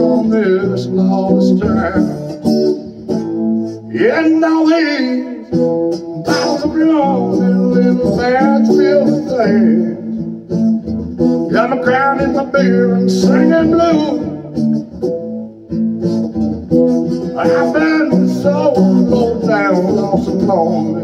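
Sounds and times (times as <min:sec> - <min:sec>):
man singing: 0:00.0 - 0:02.9, 0:03.8 - 0:10.3, 0:11.4 - 0:14.6, 0:17.1 - 0:21.0
acoustic guitar strumming: 0:00.0 - 0:21.0.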